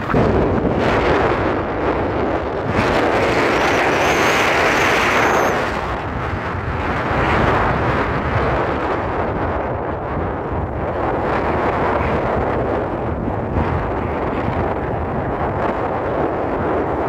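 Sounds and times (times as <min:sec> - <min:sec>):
vehicle road noise: 0:00.0 - 0:07.7
wind rushing over microphone: 0:00.0 - 0:17.0
faint high whine: 0:03.4 - 0:05.9.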